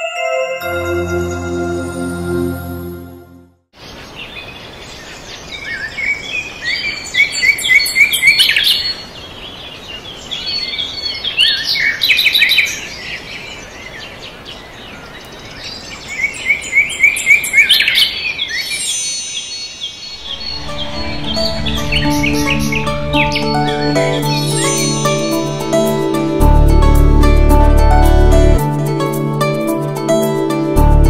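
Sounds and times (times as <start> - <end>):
birds chirping and singing: 3.8 - 26.3.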